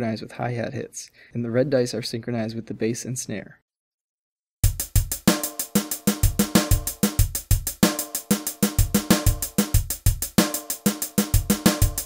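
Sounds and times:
funk drum-kit groove: 4.6s - 12.0s.

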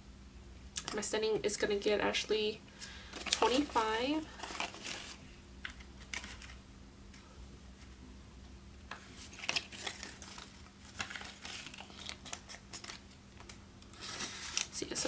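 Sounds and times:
banknotes rustling and crinkling: 2.8s - 7.9s, 8.9s - 15.0s.

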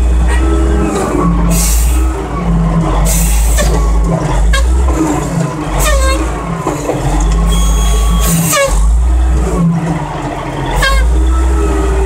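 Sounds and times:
loader diesel engine revving: 0.0s - 12.0s
brief squeal: 7.2s - 8.8s.

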